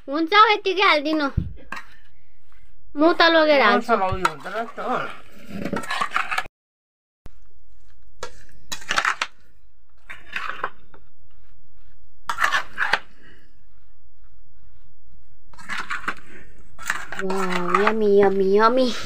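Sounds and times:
metal spoon scraping metal bowl: 0:04.2 - 0:06.5, 0:08.2 - 0:09.4, 0:10.0 - 0:11.0, 0:12.3 - 0:13.2, 0:15.5 - 0:19.0.

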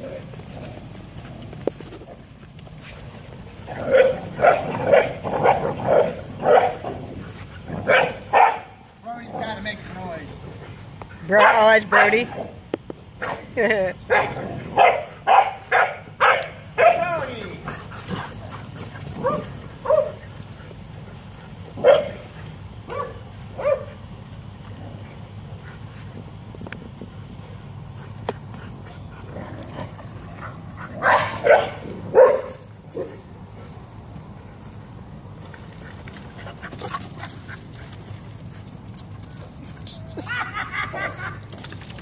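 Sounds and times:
dog barking: 0:03.9 - 0:06.8, 0:07.8 - 0:08.8, 0:11.4 - 0:12.1, 0:14.1 - 0:17.0, 0:19.2 - 0:20.2, 0:21.8 - 0:22.2, 0:22.9 - 0:23.9, 0:31.0 - 0:33.2.

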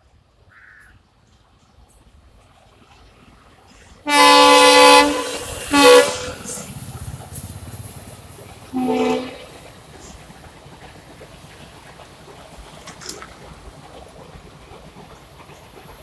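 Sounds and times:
train running rumble: 0:01.1 - 0:16.0
locomotive horn blasts: 0:04.1 - 0:06.6, 0:08.7 - 0:09.5.

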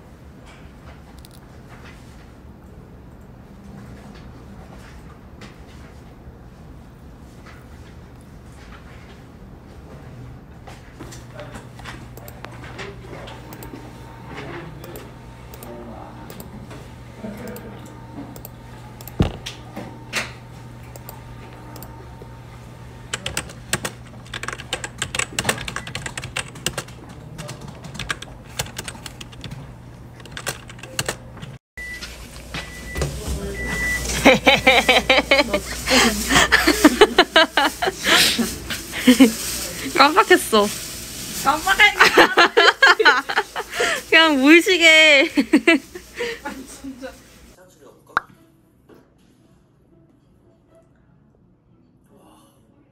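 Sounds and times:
typing on keyboard: 0:23.1 - 0:29.6, 0:30.2 - 0:31.6.

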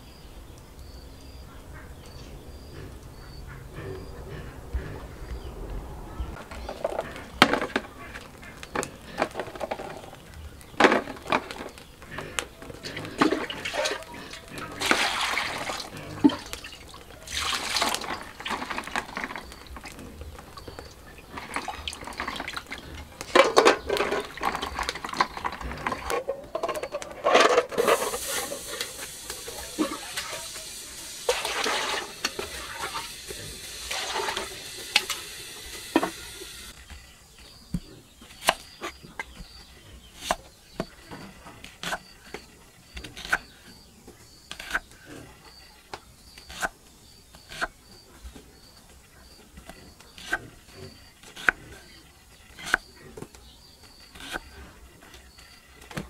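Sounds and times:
water splashing in plastic bowl: 0:12.9 - 0:26.1, 0:27.8 - 0:36.3.

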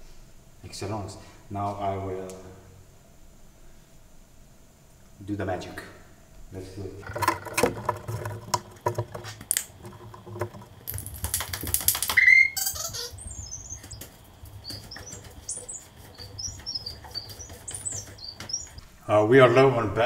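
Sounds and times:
workbench scraping on concrete: 0:07.0 - 0:11.2
workbench knocking: 0:07.0 - 0:12.1
small birds chirping: 0:09.6 - 0:19.2
short squeal: 0:12.1 - 0:13.9.

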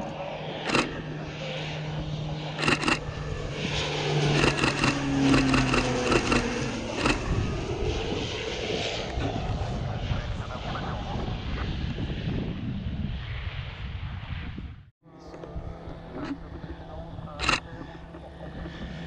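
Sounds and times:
sharp clicks: 0:00.0 - 0:01.0, 0:02.6 - 0:03.0, 0:04.3 - 0:07.2, 0:17.4 - 0:17.6
wind noise: 0:00.0 - 0:14.9
low-flying aircraft engine drone: 0:00.0 - 0:19.0.

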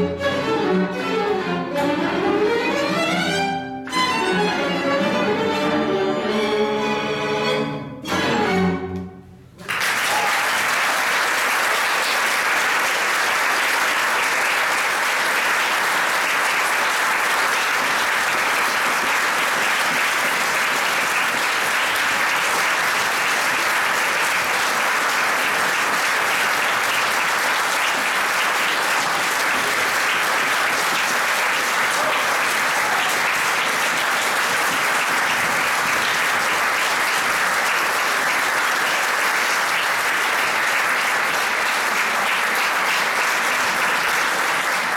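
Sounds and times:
audience applauding: 0:09.6 - 0:44.9.

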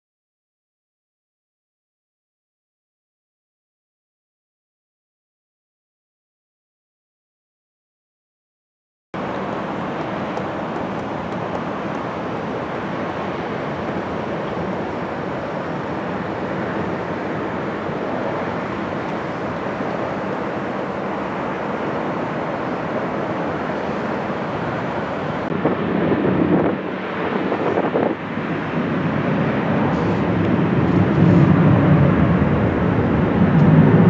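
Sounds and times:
deep engine rumble: 0:09.2 - 0:34.0
jet engines roaring: 0:09.2 - 0:34.0.

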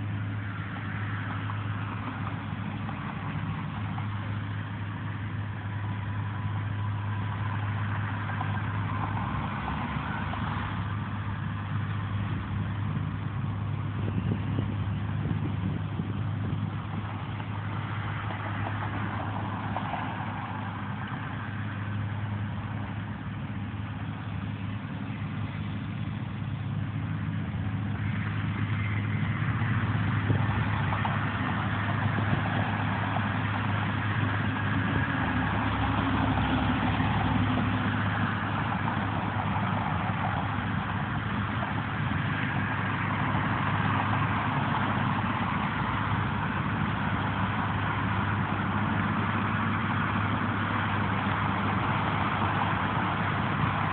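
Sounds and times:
engine hum: 0:00.0 - 0:53.9
road noise: 0:00.0 - 0:53.9.

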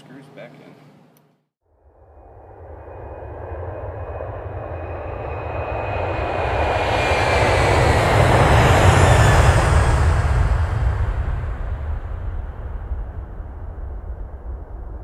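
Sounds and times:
faint high whine falling in pitch: 0:01.8 - 0:07.5
loud steady roar with rumble: 0:01.9 - 0:15.0.

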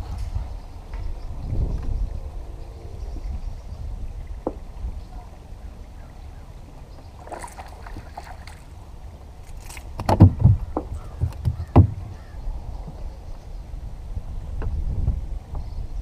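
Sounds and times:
wind rumble on microphone: 0:00.0 - 0:16.0
thumps on boat deck: 0:10.0 - 0:12.3.

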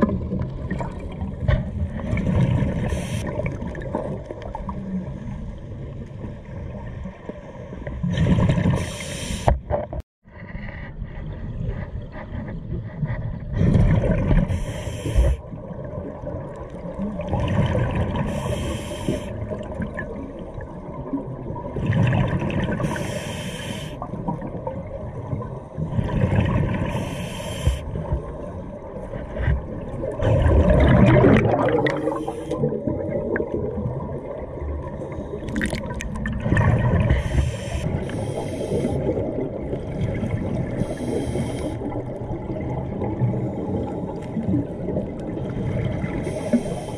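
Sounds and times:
regulator inhale hiss: 0:02.8 - 0:03.3, 0:08.7 - 0:09.5, 0:14.4 - 0:15.4, 0:18.2 - 0:19.4, 0:22.8 - 0:24.0, 0:26.9 - 0:27.9, 0:32.0 - 0:32.6, 0:37.1 - 0:39.1, 0:40.8 - 0:41.9, 0:46.2 - 0:46.9
exhaust bubbles rushing: 0:30.0 - 0:34.7.

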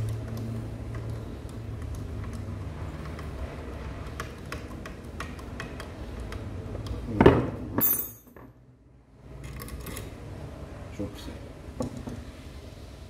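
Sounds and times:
ringing metal clink: 0:07.8 - 0:08.4.

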